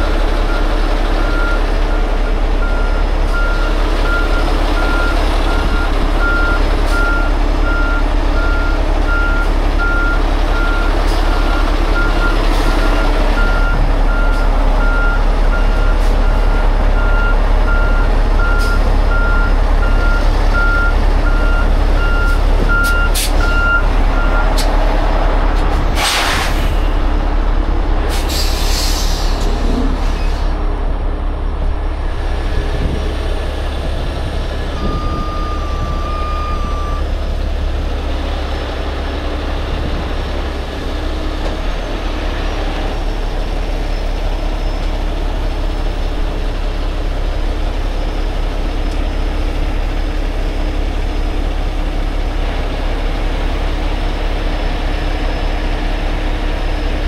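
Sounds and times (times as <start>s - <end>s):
diesel engine running: 0.0s - 57.0s
reversing alarm beeping: 2.6s - 24.5s, 34.8s - 37.1s
short hisses of air: 26.0s - 26.8s, 28.1s - 30.5s.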